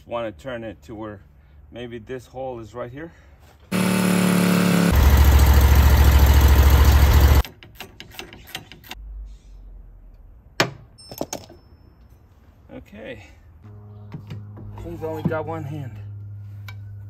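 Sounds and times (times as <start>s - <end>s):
stump grinder engine running: 3.7s - 7.4s.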